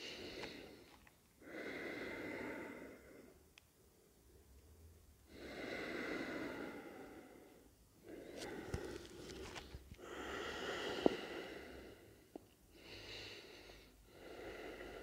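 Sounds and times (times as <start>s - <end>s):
man breathing through nose: 0.0s - 3.3s, 5.3s - 15.0s.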